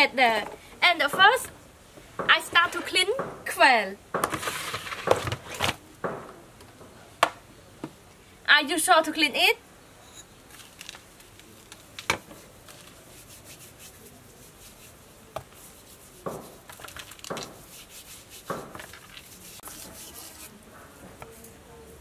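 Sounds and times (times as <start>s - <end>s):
wet rubbing and rustling: 10.5s - 21.5s.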